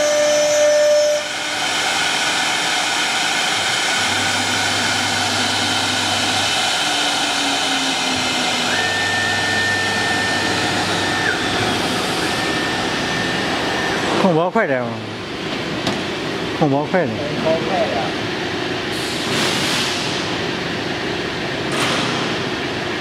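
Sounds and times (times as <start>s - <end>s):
wood router cutting board: 0.0s - 14.2s
higher steady tone: 3.9s - 15.2s.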